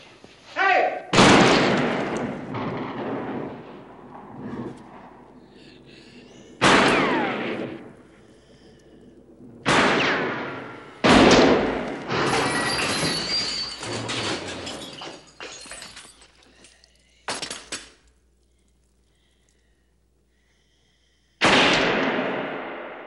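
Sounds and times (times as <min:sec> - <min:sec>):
crashing and clattering: 0:11.2 - 0:16.7.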